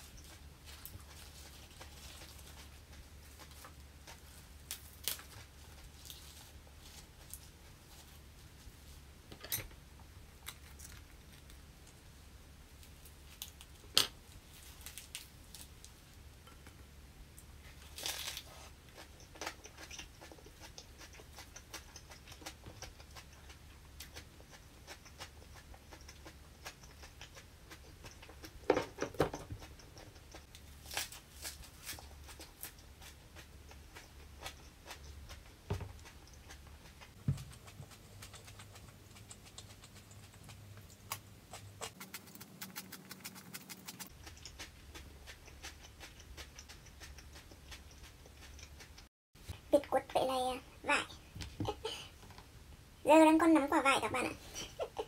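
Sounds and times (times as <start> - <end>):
person chewing crunchy food: 0.0 - 9.0, 17.4 - 49.1.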